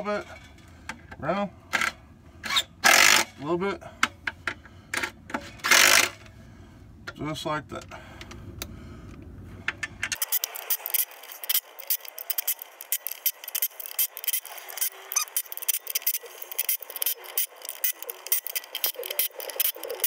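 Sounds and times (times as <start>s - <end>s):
ratchet wrench clicking: 10.0s - 20.0s.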